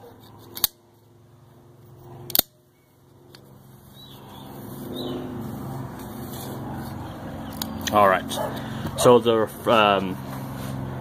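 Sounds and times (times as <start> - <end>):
low hum: 0.0 - 11.0
sharp metallic clicks: 0.5 - 0.8.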